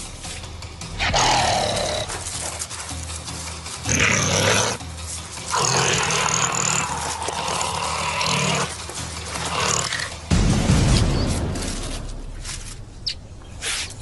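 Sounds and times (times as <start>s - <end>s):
low background music: 0.0s - 14.0s
animal giving harsh calls: 1.0s - 2.6s, 3.8s - 4.8s, 5.5s - 10.2s.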